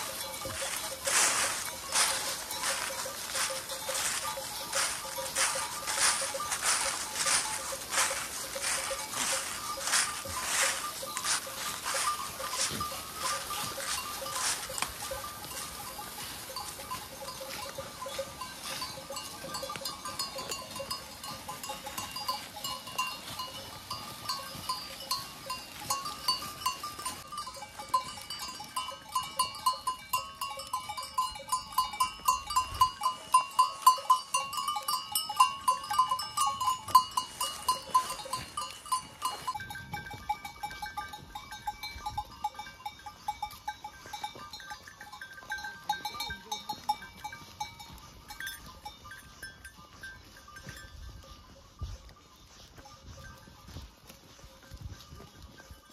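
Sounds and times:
goat bells clinking: 0:00.0 - 0:55.9.

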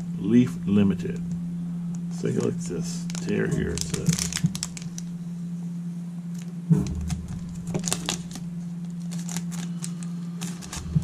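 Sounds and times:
foil wrapper crinkling: 0:02.2 - 0:05.2, 0:06.3 - 0:11.0
cards pulled out clicking: 0:02.3 - 0:05.1, 0:06.4 - 0:11.0.

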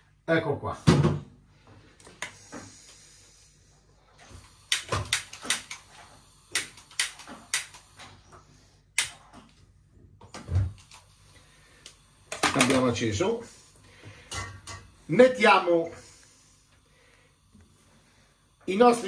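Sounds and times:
piezo gas lighter clicking: 0:04.4 - 0:08.0, 0:09.0 - 0:09.2.

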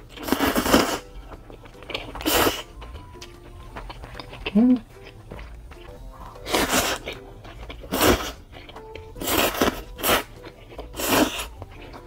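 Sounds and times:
person slurping noodles: 0:00.0 - 0:01.2, 0:01.9 - 0:02.8, 0:05.8 - 0:12.0.

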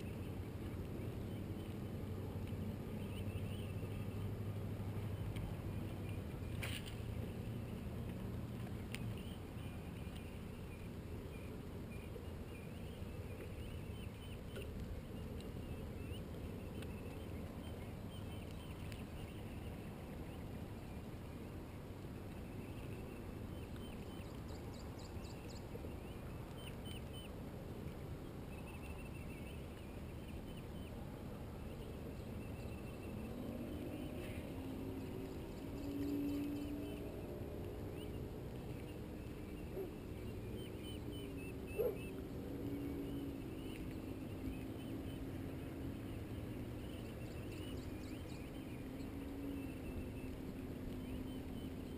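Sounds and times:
wind and water rumble: 0:00.0 - 0:51.9.

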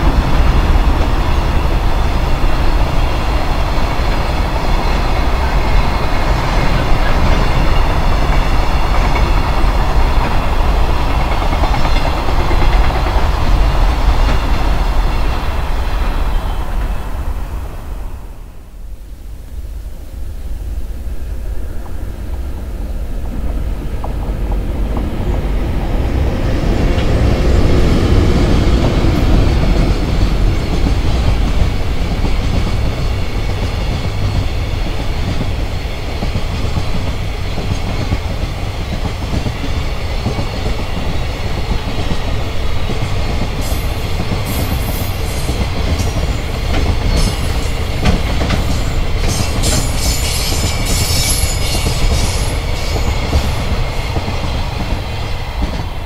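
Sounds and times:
wheels clacking over rail joints: 0:00.0 - 0:17.0, 0:26.6 - 0:56.0
freight train rumbling past: 0:00.0 - 0:56.0
high-pitched metallic wheel squeaks: 0:48.7 - 0:53.3.

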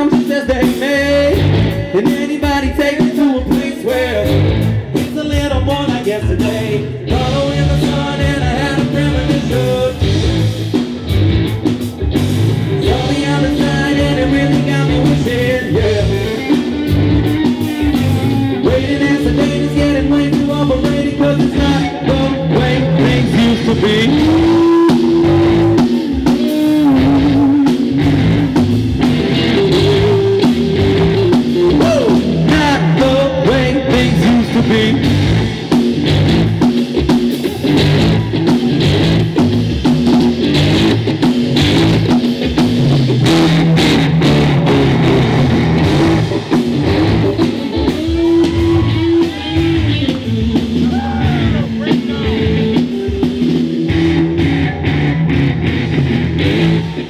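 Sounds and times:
person singing: 0:00.0 - 0:10.8, 0:12.7 - 0:35.6, 0:45.9 - 0:55.1
drum kit: 0:00.0 - 0:57.0
electric guitar: 0:00.0 - 0:57.0.

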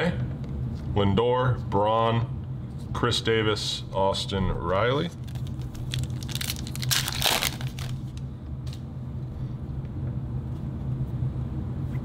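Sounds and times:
steady low hum: 0:00.0 - 0:12.0
wrapper tearing and crinkling: 0:05.2 - 0:08.2.

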